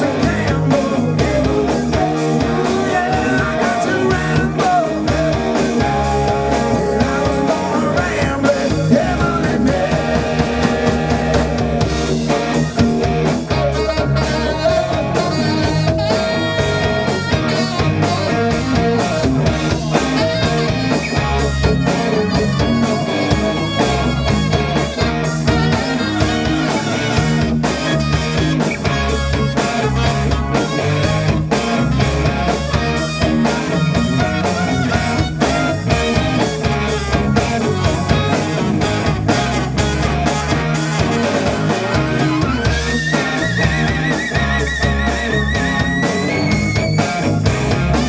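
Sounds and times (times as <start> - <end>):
bass guitar: 0.0 - 48.0
drum kit: 0.0 - 48.0
electric guitar: 0.0 - 48.0
saxophones: 9.4 - 47.5.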